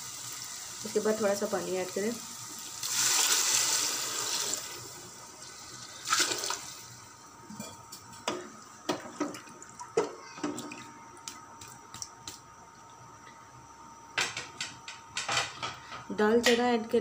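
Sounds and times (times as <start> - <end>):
water pouring into a pot: 2.4 - 6.9.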